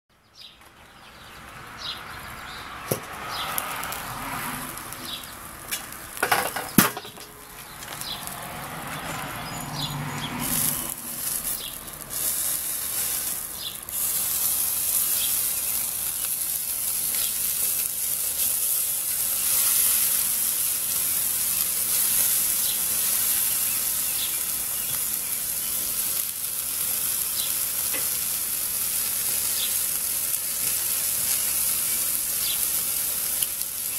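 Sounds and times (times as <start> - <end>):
meat sizzling over charcoal: 0.9 - 33.9
metal clanks: 5.7 - 7.4.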